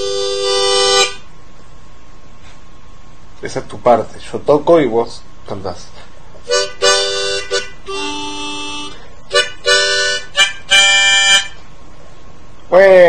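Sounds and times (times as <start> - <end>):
harmonica chords: 0.0 - 1.3, 6.4 - 11.7.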